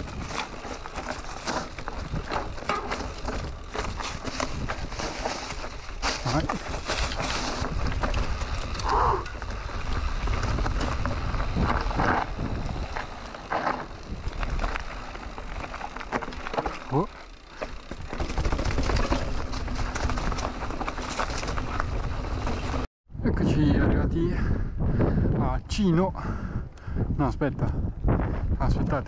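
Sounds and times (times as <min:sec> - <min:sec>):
wind rumble on microphone: 0:00.0 - 0:15.8, 0:18.4 - 0:29.0
bike rattling and knocking: 0:00.0 - 0:22.9
tyres crunching over dirt and stones: 0:00.0 - 0:22.9
tyres rolling on cobblestones: 0:00.0 - 0:22.9.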